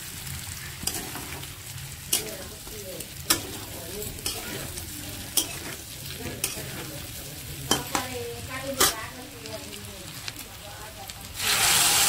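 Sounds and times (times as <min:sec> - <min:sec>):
frying sizzle: 0:00.0 - 0:12.0
metal spatula scraping pan: 0:00.5 - 0:09.2.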